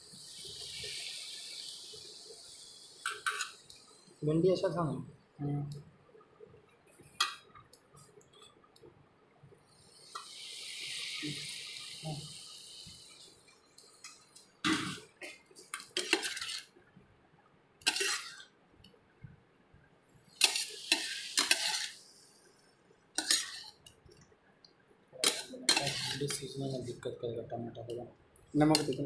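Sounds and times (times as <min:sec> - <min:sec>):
okra sizzling in hot oil: 0:00.0 - 0:04.4, 0:09.7 - 0:16.8, 0:17.8 - 0:18.6, 0:20.2 - 0:24.2, 0:25.2 - 0:27.0, 0:28.4 - 0:29.0
spatula scraping pan: 0:15.7 - 0:16.7, 0:17.8 - 0:18.4, 0:20.3 - 0:22.0, 0:23.2 - 0:23.8, 0:25.2 - 0:26.5.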